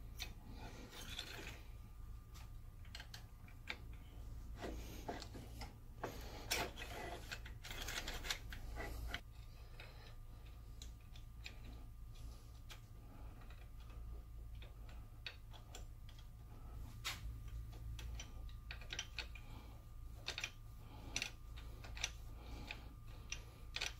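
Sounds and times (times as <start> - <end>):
small metal parts clicking: 0.1 - 1.7, 2.8 - 4.1, 6.4 - 12.8, 17.4 - 19.6, 20.2 - 23.9.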